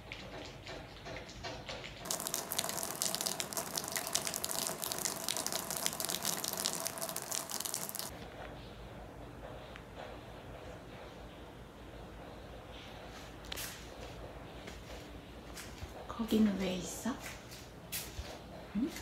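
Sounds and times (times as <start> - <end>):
rainwater splashing from roof: 0.0 - 8.1.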